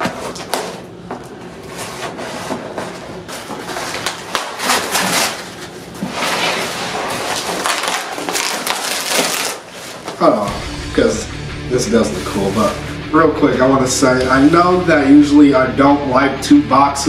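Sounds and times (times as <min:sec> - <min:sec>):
cardboard ripping and crumpling: 0:01.8 - 0:10.4
knife cutting cardboard tape: 0:03.5 - 0:09.8.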